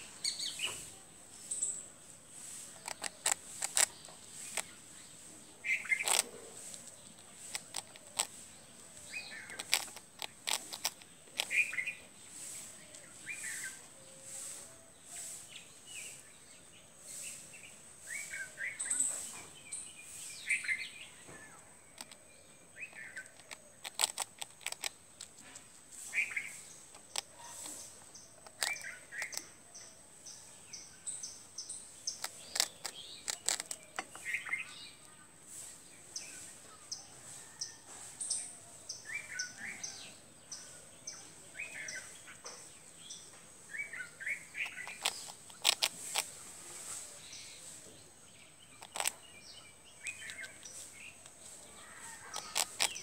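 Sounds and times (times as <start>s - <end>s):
squirrel gnawing hard toast: 2.8s - 4.8s, 5.6s - 8.4s, 9.0s - 11.7s, 22.9s - 25.8s, 26.4s - 29.5s, 32.1s - 34.1s, 44.5s - 46.4s, 48.8s - 49.2s, 51.9s - 53.0s.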